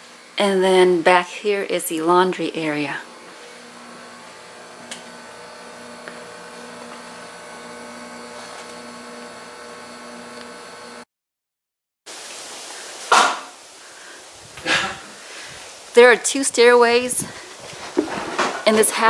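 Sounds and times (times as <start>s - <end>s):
appliance motor humming: 2.5s - 11.1s.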